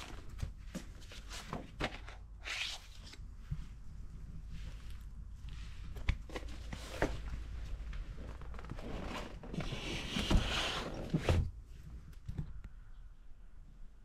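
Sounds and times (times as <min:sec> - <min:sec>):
scraping and rustling: 0:05.7 - 0:11.5.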